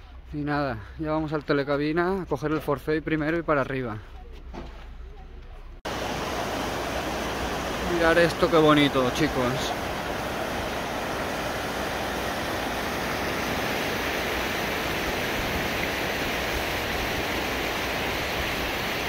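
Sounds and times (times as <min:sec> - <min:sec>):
river rushing over rocks: 0:05.9 - 0:19.0.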